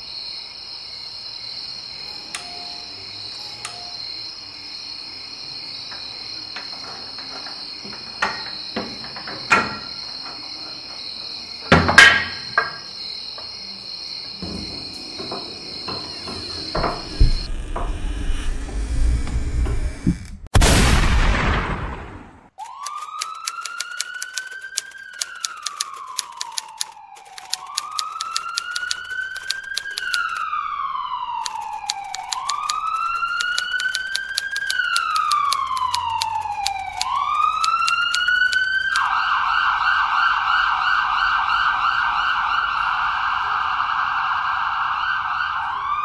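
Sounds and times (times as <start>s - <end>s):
loud hit: 20.5s - 22.3s
typewriter key clicks: 22.6s - 30.4s, 31.4s - 39.1s.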